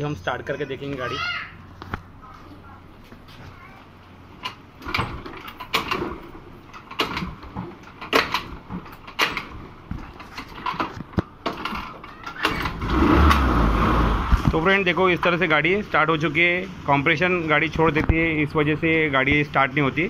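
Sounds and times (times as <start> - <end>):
scooter knocks and clatters: 4.4 - 13.5
scooter engine starting: 11.5 - 14.6.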